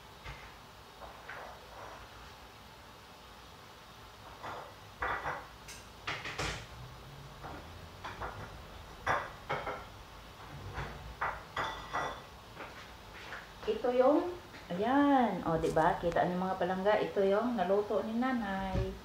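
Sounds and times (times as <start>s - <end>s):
metal cookware knocking and clinking: 11.2s - 12.3s.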